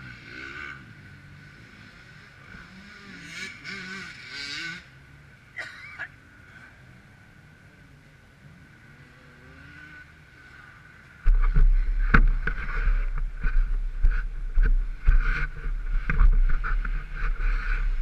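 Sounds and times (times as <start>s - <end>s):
microphone rubbing and knocking: 11.2s - 18.0s.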